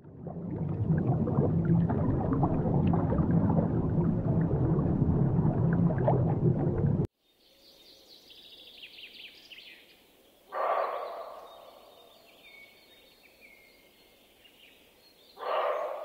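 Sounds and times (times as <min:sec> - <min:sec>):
low underwater rumble: 0:00.0 - 0:07.1
songbird chirping: 0:07.2 - 0:16.0.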